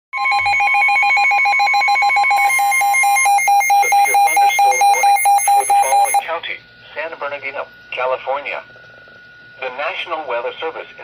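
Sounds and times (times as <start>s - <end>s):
rapid alert beeping: 0.2s - 6.2s
second beep pattern: 0.2s - 6.2s
steady alarm tone: 0.2s - 6.3s
broadcast voice: 3.6s - 8.6s.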